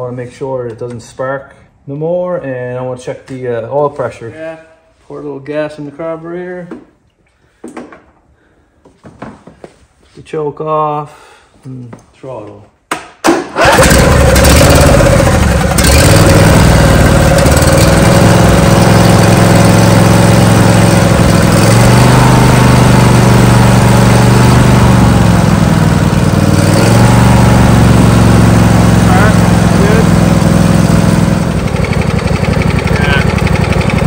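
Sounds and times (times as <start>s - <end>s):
lawn tractor engine running: 13.6s - 34.0s.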